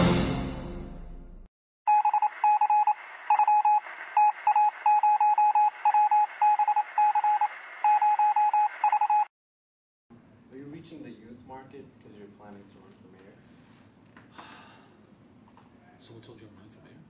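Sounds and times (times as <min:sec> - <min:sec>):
morse code electronic beeps: 0:01.9 - 0:09.3.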